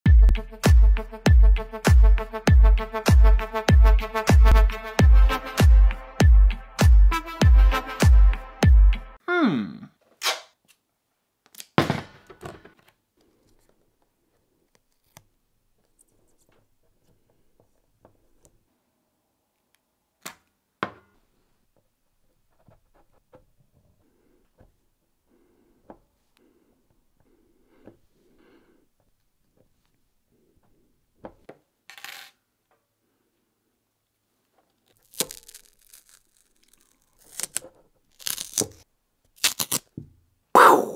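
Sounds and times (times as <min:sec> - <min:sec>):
thump: 0:11.8 - 0:12.6
tape tearing crackle: 0:34.8 - 0:39.9.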